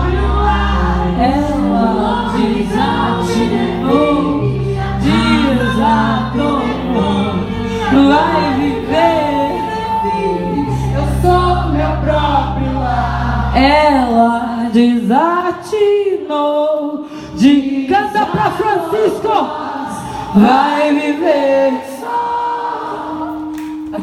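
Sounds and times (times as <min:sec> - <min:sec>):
low bass notes: 0:00.0 - 0:15.6
women singing with live band: 0:00.0 - 0:24.0.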